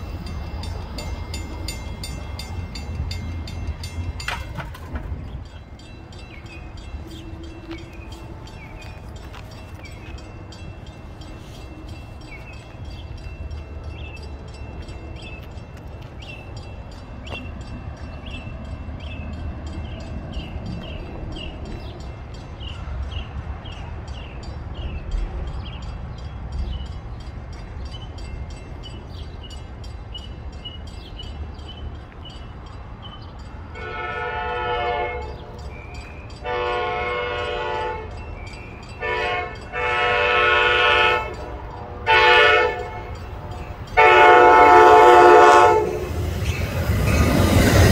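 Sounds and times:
train horn blasts: 33.7 - 35.6, 36.4 - 38.2, 39.0 - 43.3, 43.9 - 46.2.

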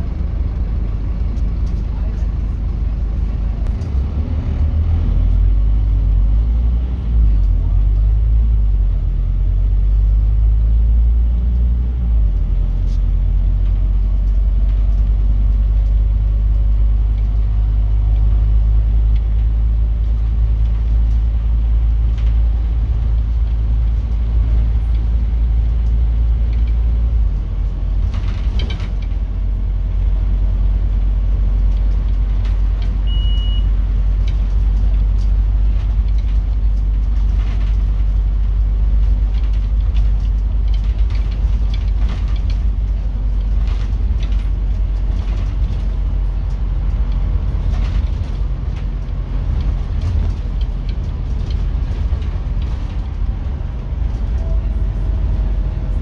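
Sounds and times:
bus diesel engine rumbling: 0.0 - 56.0
brief clatter: 28.0 - 29.2, 39.3 - 42.8, 43.4 - 46.6, 47.6 - 48.9.

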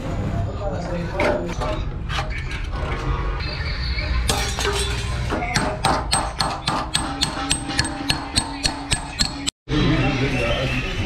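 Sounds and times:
hammer striking chisel on metal: 4.3 - 9.6.

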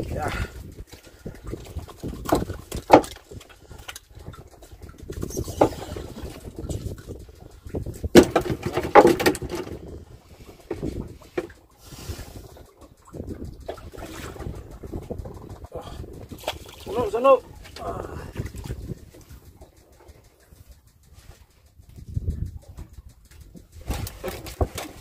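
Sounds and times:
knocks and thumps on wooden boat: 1.5 - 3.4, 4.3 - 11.6, 23.5 - 25.0.

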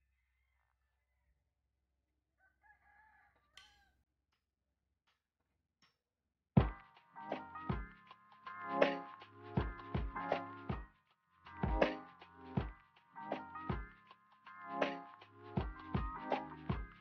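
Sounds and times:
rooster crowing: 2.4 - 3.9.

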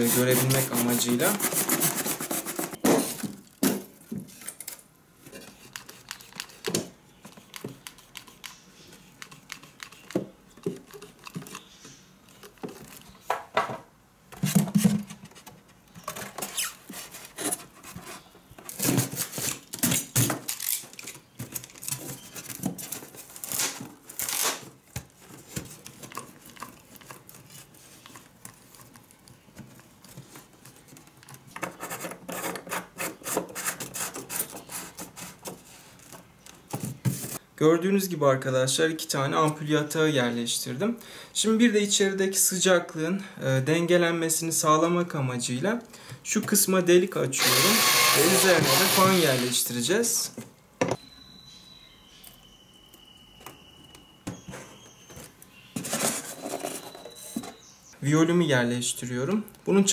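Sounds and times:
scraping and rubbing styrofoam: 0.0 - 3.3, 16.3 - 20.2, 31.6 - 36.0, 55.7 - 57.3.

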